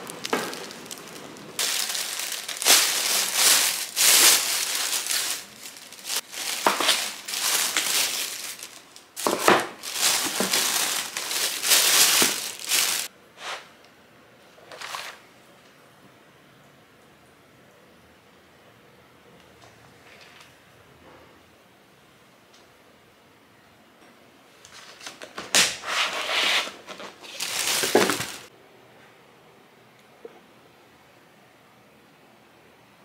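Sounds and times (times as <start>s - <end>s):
plastic bag crinkling: 0.0s - 13.1s, 26.8s - 28.5s.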